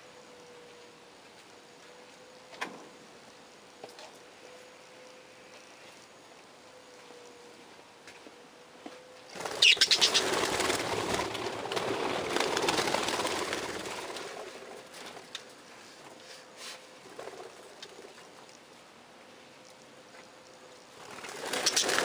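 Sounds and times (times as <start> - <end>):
budgerigars flapping wings: 9.3 - 16.3, 16.9 - 18.4, 20.9 - 22.0.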